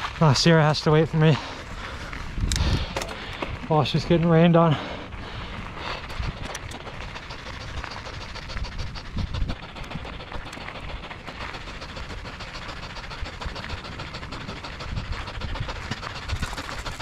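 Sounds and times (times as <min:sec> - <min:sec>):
tyres crunching over gravel: 0:00.0 - 0:05.9
bike rattling: 0:00.0 - 0:17.0
wind rumble on microphone: 0:01.6 - 0:11.1, 0:13.0 - 0:17.0.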